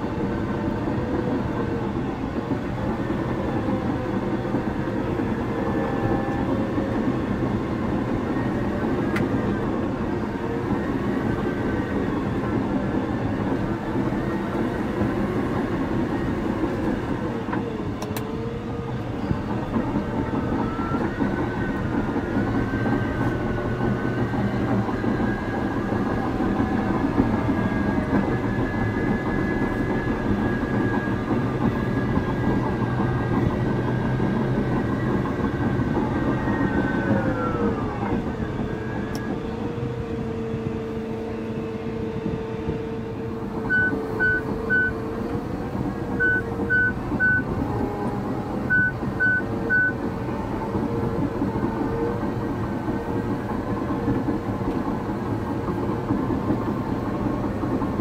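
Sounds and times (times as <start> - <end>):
bulldozer diesel engine: 0.0 - 58.0
drivetrain whine: 0.0 - 58.0
warning alarm beeps: 43.7 - 45.0, 46.2 - 47.5, 48.7 - 50.0.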